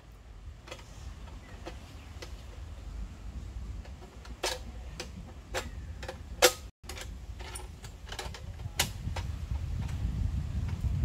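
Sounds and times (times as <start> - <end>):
metal parts clicking and knocking: 3.8 - 10.0.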